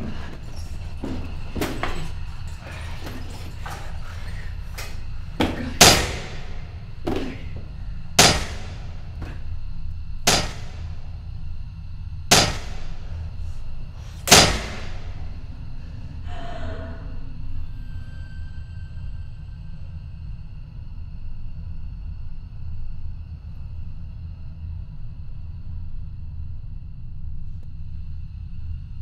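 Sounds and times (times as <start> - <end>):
low steady rumble: 0.0 - 29.0
loud ringing bangs: 5.3 - 9.4, 10.2 - 11.2, 12.3 - 13.2, 14.2 - 15.5.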